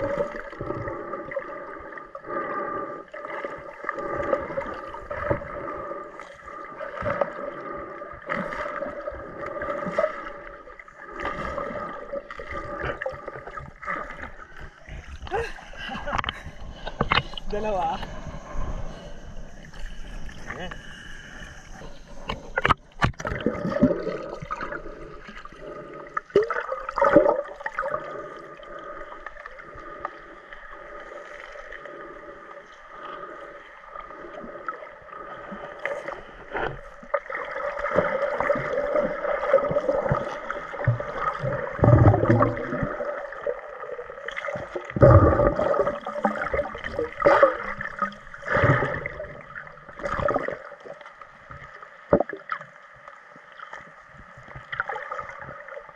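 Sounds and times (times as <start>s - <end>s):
water gurgling and bubbling underwater: 0.0s - 55.9s
knocks and low thumps underwater: 11.3s - 18.9s, 22.1s - 24.8s, 36.6s - 43.1s, 44.5s - 50.6s, 52.1s - 52.6s.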